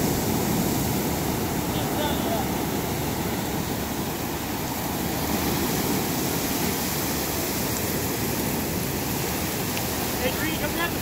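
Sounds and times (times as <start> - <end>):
ocean surf breaking: 0.0 - 11.0.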